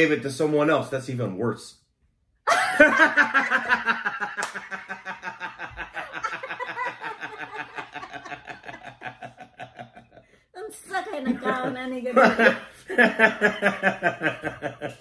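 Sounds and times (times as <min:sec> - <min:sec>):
man and woman laughing: 0:02.5 - 0:10.2, 0:11.2 - 0:15.0.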